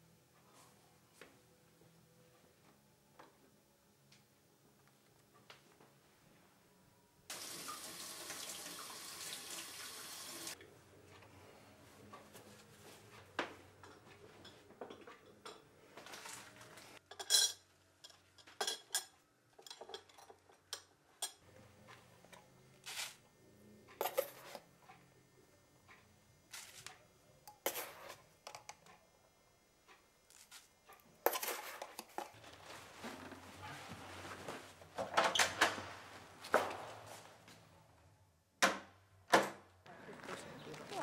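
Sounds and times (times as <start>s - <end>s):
crockery clinking: 17.0s - 21.4s.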